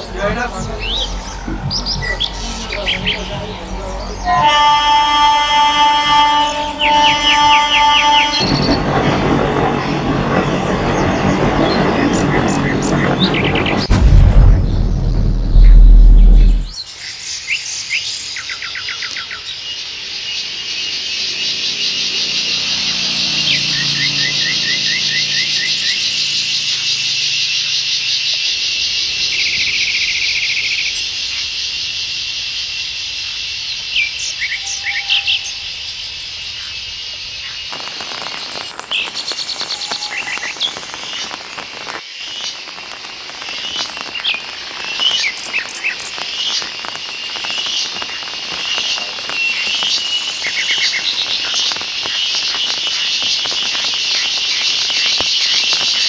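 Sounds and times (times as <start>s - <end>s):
high-pitched insect chorus: 17.1s - 56.0s.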